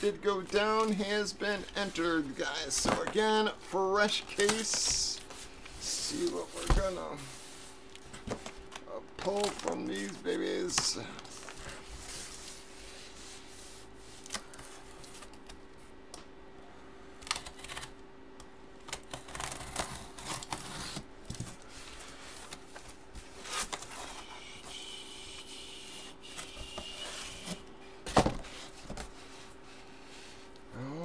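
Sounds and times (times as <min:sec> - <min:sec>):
cardboard rustling and sliding: 0:04.3 - 0:08.5.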